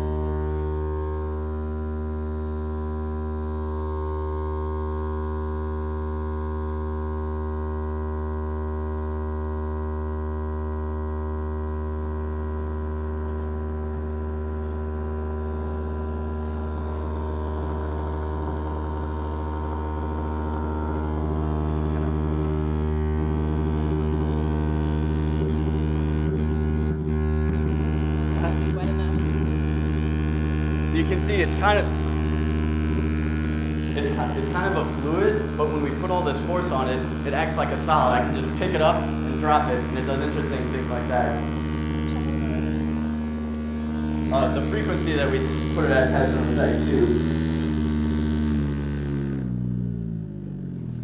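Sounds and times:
buzzy low-pitched tone: 0.0 - 51.0.

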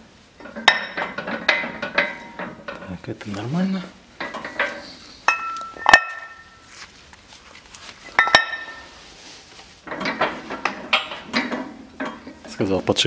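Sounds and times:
metal rattling on metal: 0.4 - 3.0
steel parts clanking: 4.2 - 6.6.

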